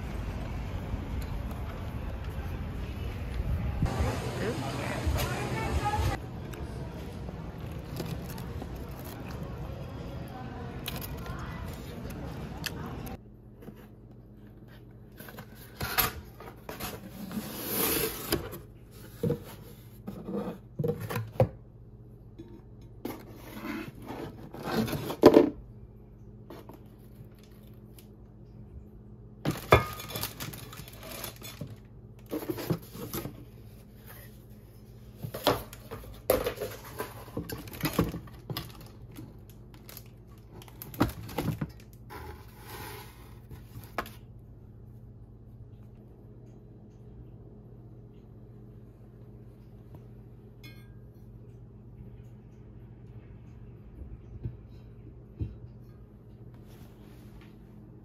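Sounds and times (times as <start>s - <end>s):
cardboard packaging rustling: 7.5s - 9.8s, 29.5s - 34.4s, 35.2s - 44.2s.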